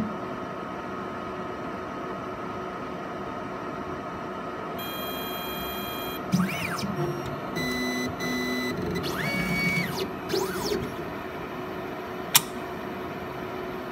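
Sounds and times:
constant machine hum: 0.0s - 13.9s
stepper motor whines: 4.8s - 11.0s
sharp click: 12.3s - 12.6s.

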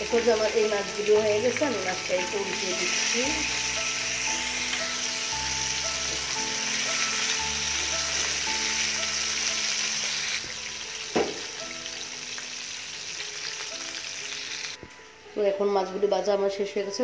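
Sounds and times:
fish sizzling in hot oil: 0.0s - 14.8s
soft background music: 0.0s - 17.0s
knock: 11.1s - 11.4s.

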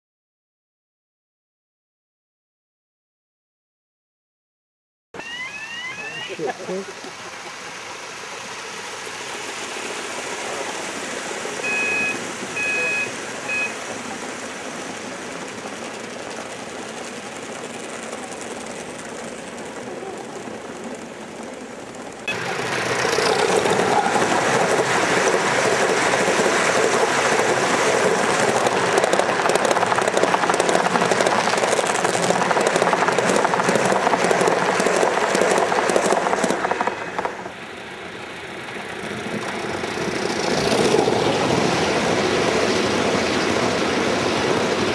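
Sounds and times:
model train wheels rumbling on rail: 5.6s - 44.9s
wheels clattering over track: 6.7s - 44.9s
short high tones: 11.6s - 13.8s.

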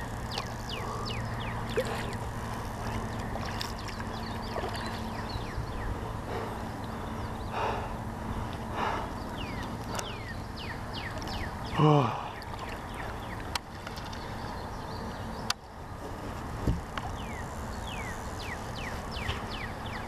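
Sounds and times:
bird chirping: 0.0s - 2.2s, 2.9s - 6.0s, 8.9s - 15.6s, 17.1s - 20.0s
steady low hum: 0.0s - 20.0s.

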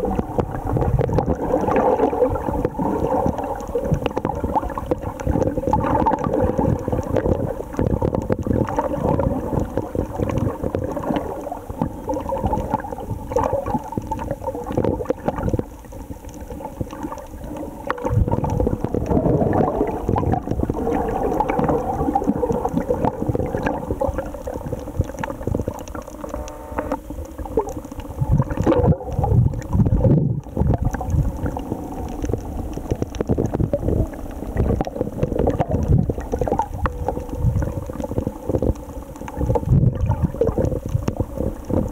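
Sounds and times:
faint steady hum: 0.0s - 41.9s
underwater water sloshing: 0.0s - 41.9s.

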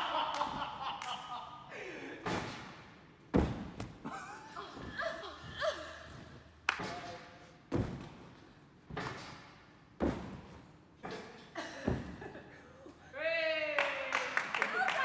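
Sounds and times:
gymnasts landing on a mat: 2.2s - 5.2s, 6.1s - 10.7s, 11.8s - 12.4s.

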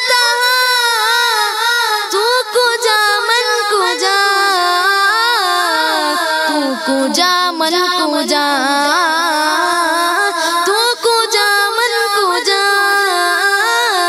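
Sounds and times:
child singing ornamented melody: 0.0s - 14.0s.

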